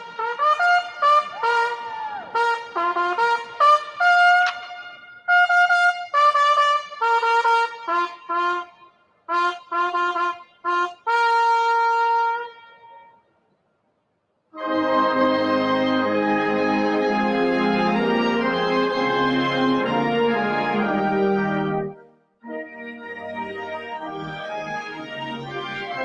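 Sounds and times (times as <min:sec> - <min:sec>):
brass fanfare: 0:00.0 - 0:13.0, 0:14.6 - 0:26.0
sustained instrumental music: 0:14.6 - 0:26.0.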